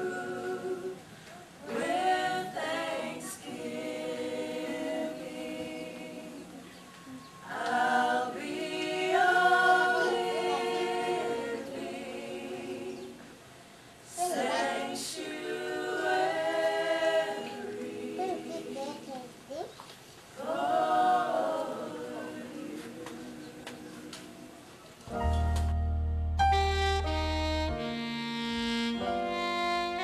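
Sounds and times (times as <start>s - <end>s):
choir singing a cappella: 0.0s - 13.5s, 14.1s - 19.3s, 20.3s - 24.8s.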